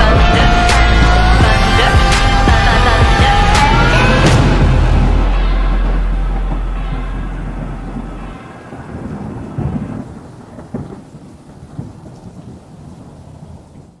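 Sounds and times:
music: 0.0 - 10.2
rain hiss: 0.0 - 14.0
rolling thunder: 0.0 - 14.0.

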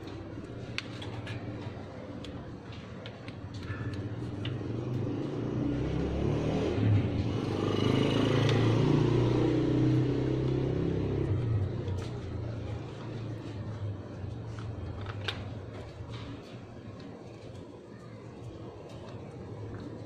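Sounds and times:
vehicle engine running: 4.0 - 16.3.

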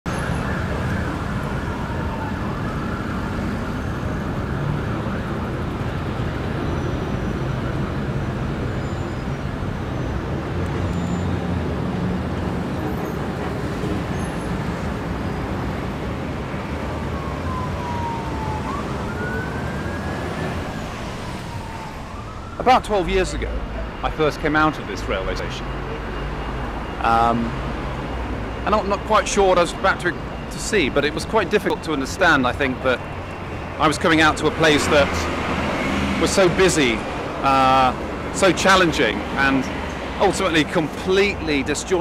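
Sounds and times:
emergency siren wailing: 0.1 - 42.0
heavy road traffic: 0.1 - 42.0.

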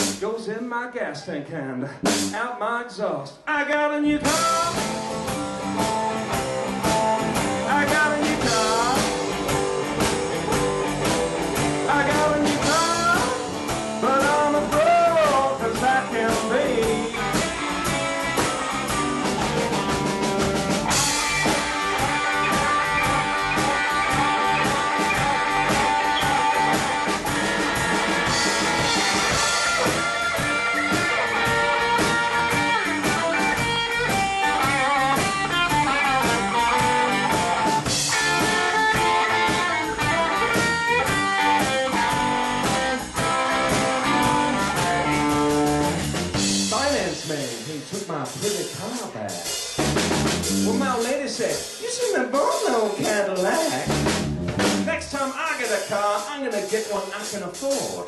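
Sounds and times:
drum kit: 0.0 - 0.5, 1.9 - 2.6, 4.2 - 58.0
electric guitar lead: 4.2 - 47.0, 49.8 - 51.8.

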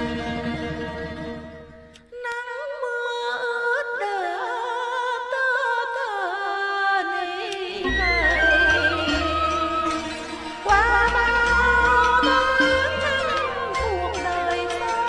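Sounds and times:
low bass music: 7.9 - 15.0
wavering ornamented melody: 7.9 - 15.0.

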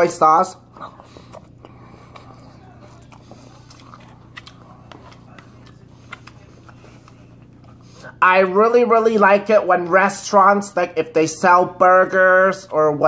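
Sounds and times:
person chewing food: 0.6 - 8.2.

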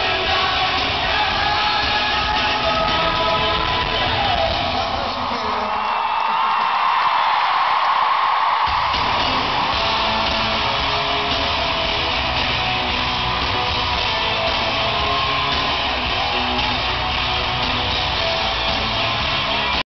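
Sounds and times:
live pop-rock band playing: 0.0 - 5.6, 8.7 - 19.8
electric guitar strumming: 8.9 - 19.8.

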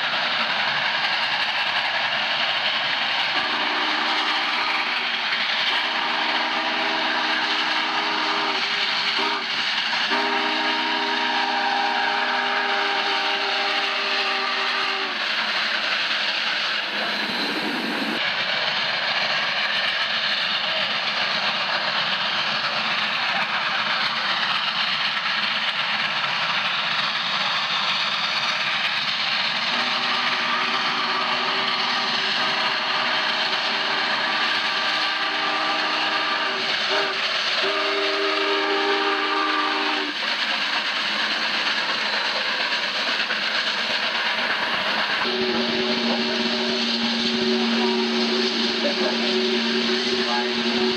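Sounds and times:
steam locomotive running: 0.0 - 50.9
steam locomotive chime whistle: 3.3 - 15.3, 29.7 - 40.2, 45.2 - 50.9.

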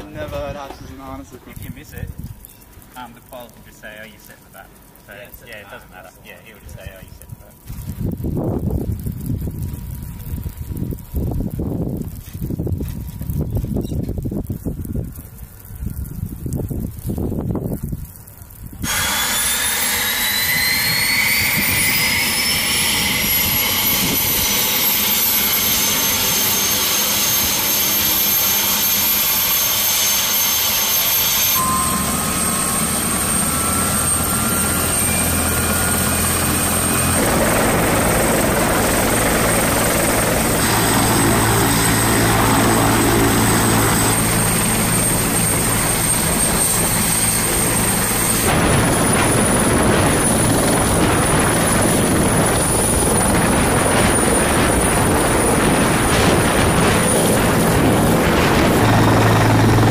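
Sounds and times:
helicopter low drone: 18.8 - 59.9
helicopter turbine whine: 18.8 - 59.9.

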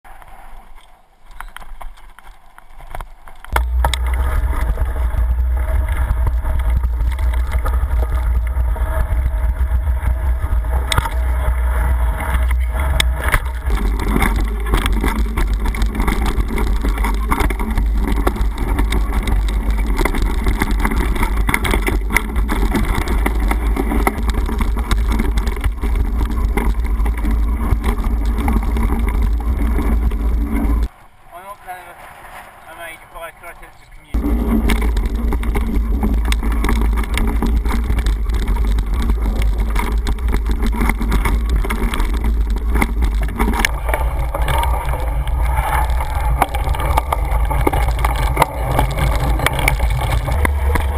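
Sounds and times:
tyre noise on gravel: 0.1 - 33.0, 34.0 - 50.9
wind rumble on microphone: 1.4 - 30.9, 34.1 - 50.9
bike rattling clicks: 34.2 - 50.9.

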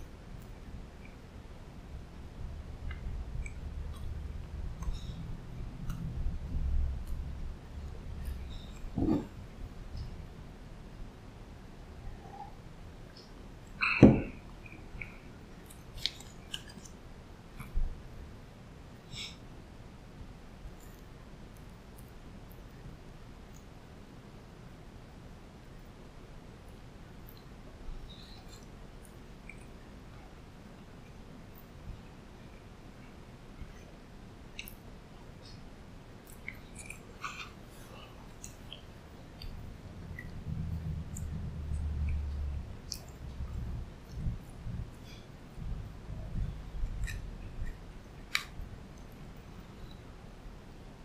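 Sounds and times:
low room hum: 0.0 - 51.0
close-up chewing: 13.8 - 17.0
wet mouth clicks and smacks: 36.2 - 37.0, 46.9 - 48.6.

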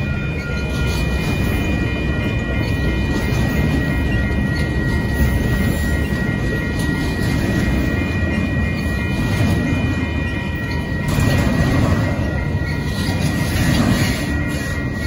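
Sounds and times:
crossing signal bell ringing: 0.0 - 15.0
train wheels rumbling on rails: 0.0 - 15.0.

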